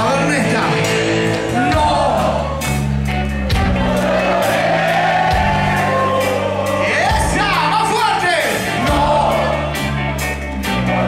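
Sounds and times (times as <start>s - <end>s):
singer's voice: 0.0s - 2.8s, 5.9s - 10.3s
bass guitar: 0.0s - 11.0s
drums: 0.0s - 11.0s.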